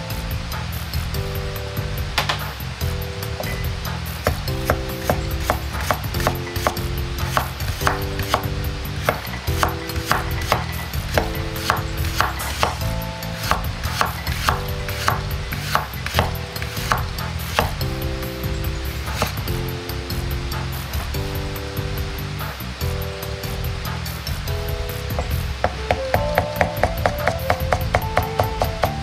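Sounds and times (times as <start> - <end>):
background music: 0.0 - 29.0
cleaver chopping on cutting board: 4.3 - 12.8, 13.4 - 17.8.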